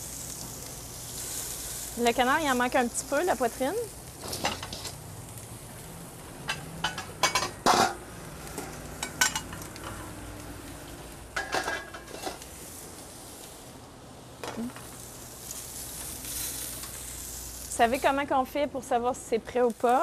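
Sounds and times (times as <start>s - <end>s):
meat sizzling on a grill: 0.0s - 20.0s
metal tongs clinking on grate: 6.5s - 10.0s, 11.4s - 12.4s.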